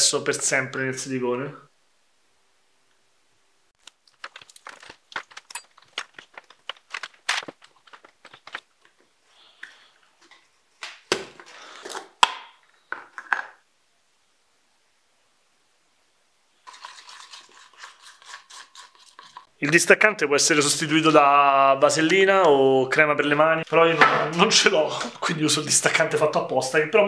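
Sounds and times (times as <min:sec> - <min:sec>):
metal spoon scraping silicone: 0:16.6 - 0:19.5.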